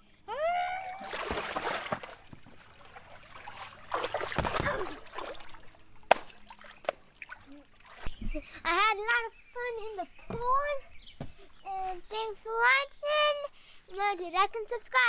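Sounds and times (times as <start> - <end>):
water splashing in a pool: 0.4 - 8.6.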